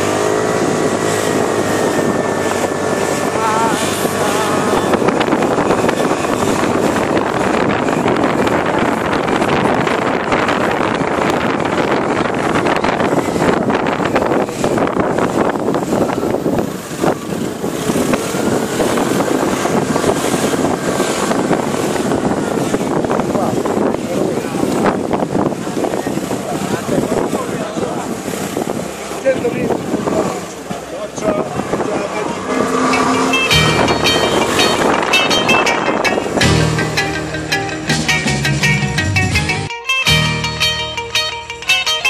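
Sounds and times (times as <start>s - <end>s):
wind buffeting microphone: 0.0s - 39.6s
short wavering high tones: 32.4s - 38.3s.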